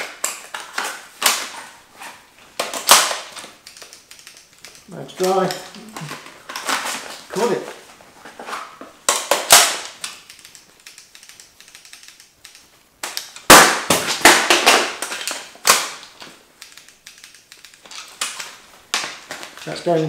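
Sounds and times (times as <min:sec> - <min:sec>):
paintball marker clicks and snaps: 0:09.1 - 0:19.1.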